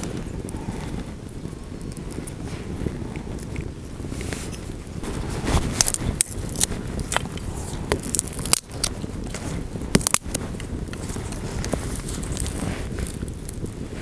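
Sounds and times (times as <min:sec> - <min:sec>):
low background rumble: 0:00.0 - 0:14.0
small fire crackling: 0:00.0 - 0:14.0.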